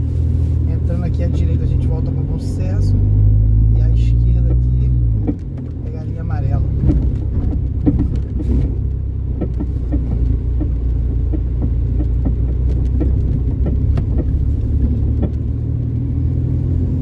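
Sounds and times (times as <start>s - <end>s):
car engine and road noise: 0.0s - 17.0s
light ticks: 4.4s - 5.8s, 6.8s - 16.1s.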